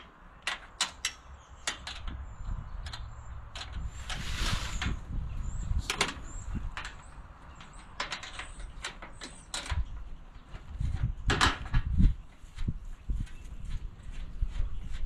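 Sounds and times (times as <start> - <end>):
sharp knocks and clicks: 0.4 - 2.2, 5.8 - 11.9.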